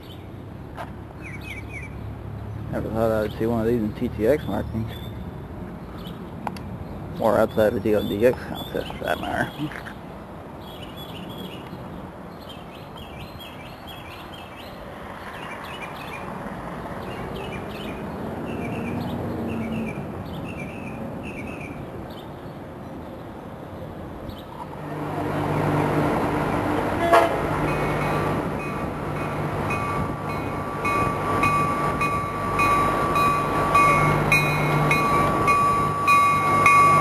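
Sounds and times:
train rumble: 24.5 - 37.0
train horn: 27.0 - 27.6.

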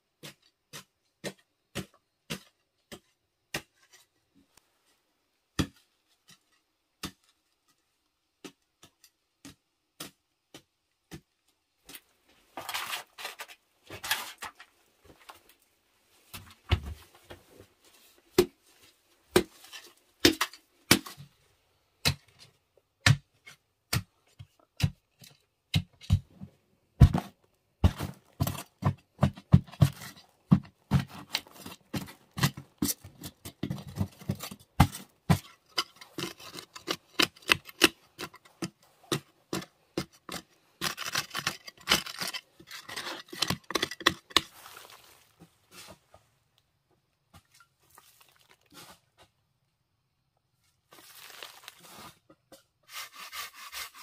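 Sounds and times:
hoe striking clay soil: 0.1 - 4.1, 5.5 - 12.0, 19.3 - 21.3, 22.0 - 46.0
scraping and earth falling: 27.0 - 46.2, 47.4 - 49.4, 50.8 - 52.3.

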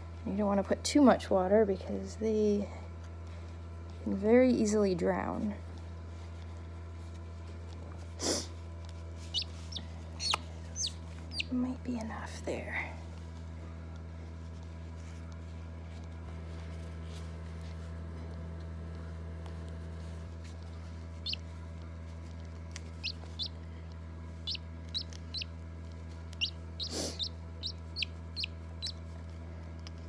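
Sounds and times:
steady low hum: 0.0 - 30.0
chick peeping: 9.3 - 11.5, 21.2 - 21.4, 23.0 - 23.6, 24.4 - 25.5, 26.3 - 29.0.

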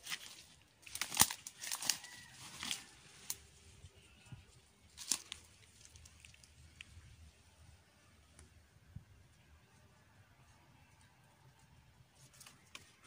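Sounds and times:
dry leaves and twigs crackling: 0.0 - 8.5, 12.1 - 13.0.

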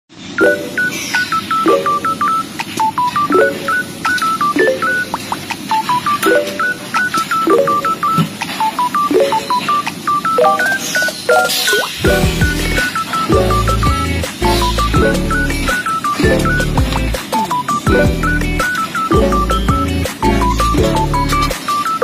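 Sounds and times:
electronic music with beep-like notes: 0.4 - 22.0.

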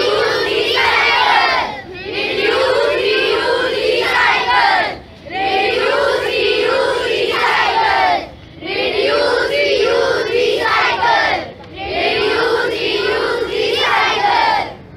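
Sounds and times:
children chanting in unison: 0.0 - 14.8.

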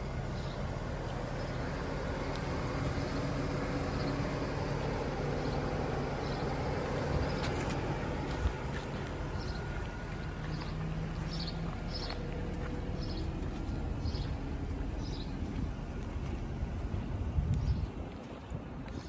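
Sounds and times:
low outdoor rumble: 0.0 - 19.0
bird chirps: 9.3 - 12.2.

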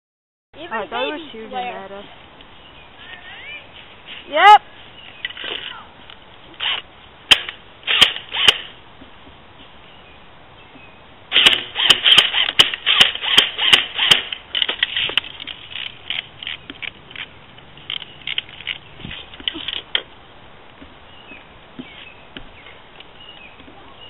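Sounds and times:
airsoft guns firing: 7.3 - 8.7, 11.3 - 14.3.

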